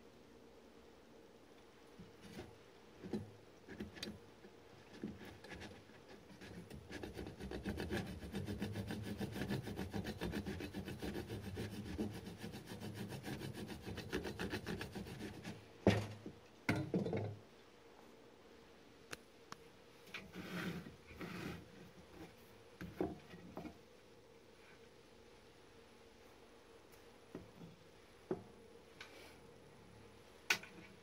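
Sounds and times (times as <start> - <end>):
knife sawing through bread: 5.2 - 15.6.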